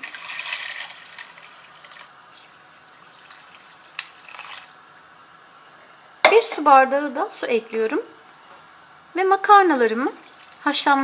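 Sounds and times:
liquid pouring into a pot: 0.0 - 5.1, 9.5 - 10.7.

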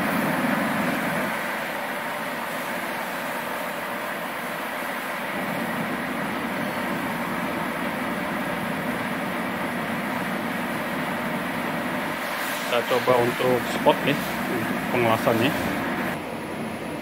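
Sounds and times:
water cooler pump humming: 0.0 - 17.0.

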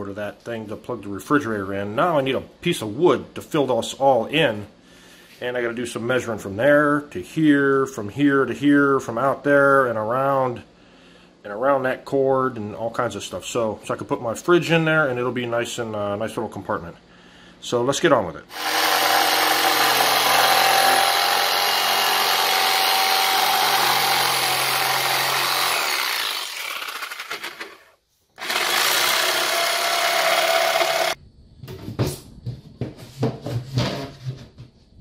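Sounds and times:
electric jigsaw cutting wood: 18.5 - 31.2.

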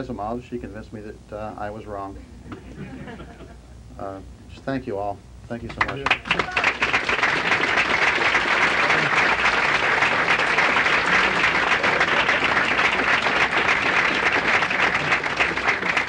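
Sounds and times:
audience applauding: 5.8 - 16.0.

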